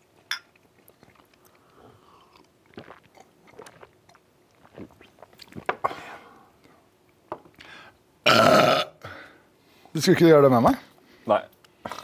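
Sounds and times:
gulping and mouth sounds: 0.0 - 6.0
glasses clinking: 0.3 - 0.5.

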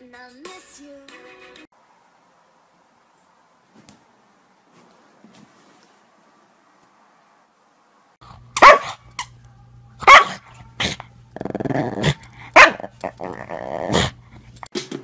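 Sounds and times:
dog barking: 8.6 - 9.1, 10.0 - 11.0, 12.0 - 14.2
dog growling: 10.2 - 14.5.

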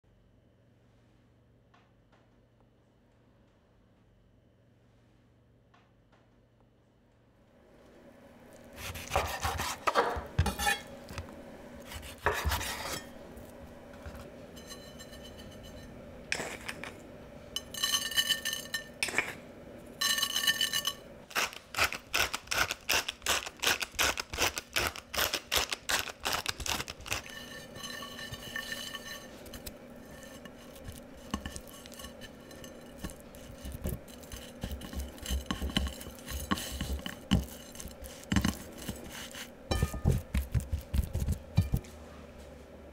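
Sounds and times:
knife cutting fish on wooden board: 8.8 - 10.8
seasoning scattered onto plate: 20.0 - 41.8
hands rubbing fish: 29.3 - 41.6.

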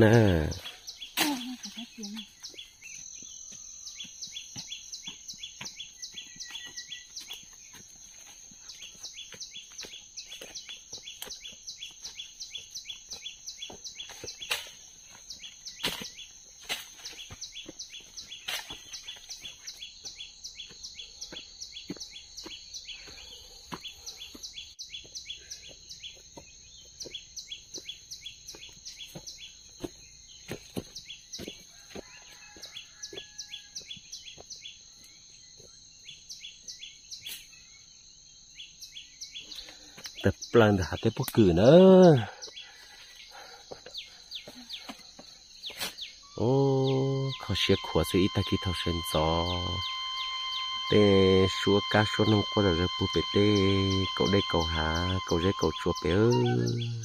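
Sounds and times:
insects buzzing: 0.0 - 57.0
footsteps on leaf litter: 4.0 - 20.8, 28.6 - 33.4.

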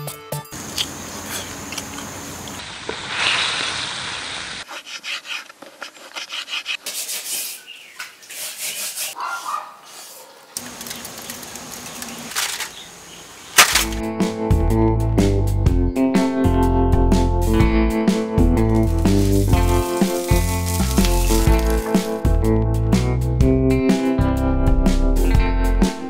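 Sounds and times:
aluminium foil crinkling: 10.6 - 12.8, 18.6 - 22.3
guitar music: 13.8 - 26.0.

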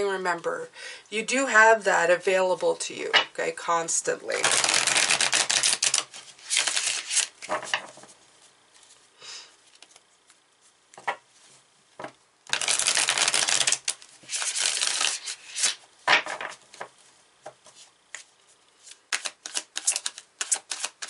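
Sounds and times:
cards fluttering while shuffled: 4.4 - 8.1, 12.5 - 16.9, 18.8 - 21.0.

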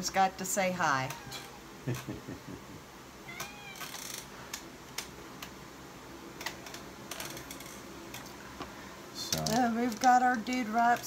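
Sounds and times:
cat meowing: 1.1 - 1.6, 3.2 - 4.2.

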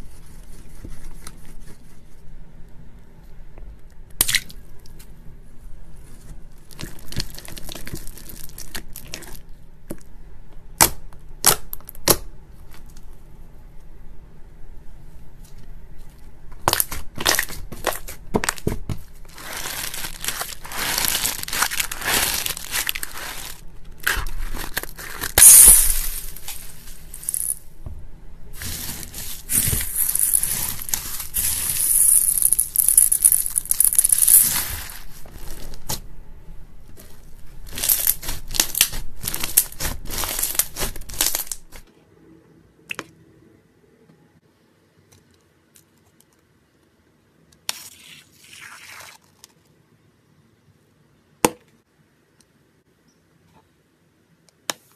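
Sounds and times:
slime squishing by hand: 36.9 - 41.9.

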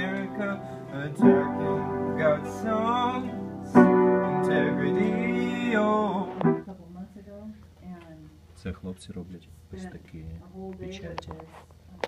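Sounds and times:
piano chords: 0.0 - 6.7.

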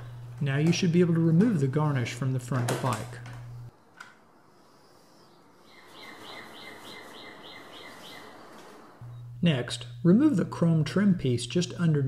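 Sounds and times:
low hum: 0.0 - 3.7, 8.6 - 12.0
bird chirping: 4.7 - 9.3.

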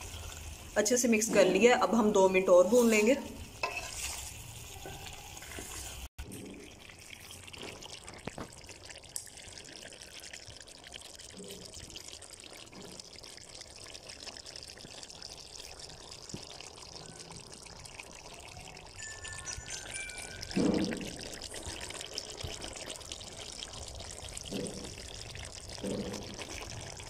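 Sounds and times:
curry sizzling in a pot: 0.0 - 27.0
spatula stirring: 2.7 - 6.1.

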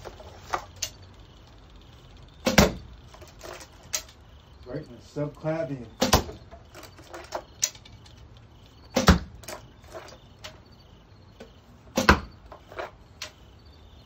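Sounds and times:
arrow thudding into target: 2.5 - 2.8, 6.0 - 6.4, 8.9 - 9.3, 11.9 - 12.4.

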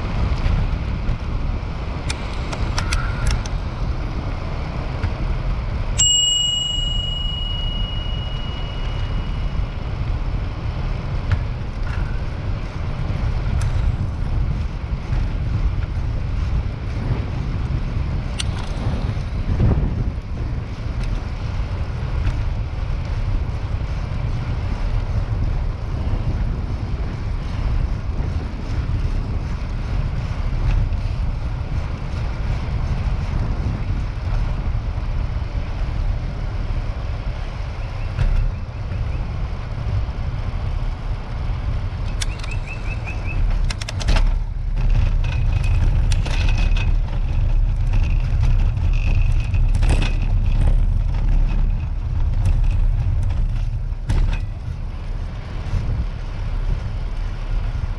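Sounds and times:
wind rush on microphone: 0.0 - 57.9
bicycle bell ringing: 6.0 - 10.2.

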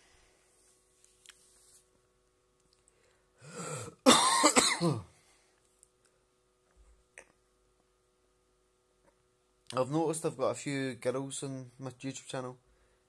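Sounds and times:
man clearing throat and coughing: 3.9 - 5.2.

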